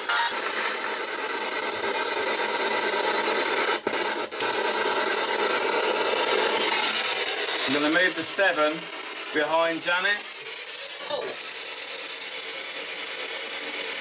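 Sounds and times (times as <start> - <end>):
radio static hiss: 0.0 - 1.0.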